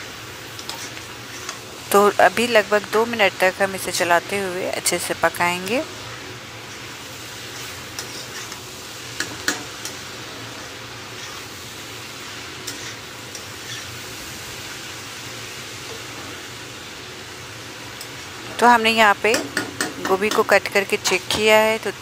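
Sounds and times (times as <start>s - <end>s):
cabbage sizzling in a pan: 0.0s - 22.0s
spatula scraping a pan: 0.6s - 1.7s, 6.6s - 11.6s, 12.4s - 14.0s.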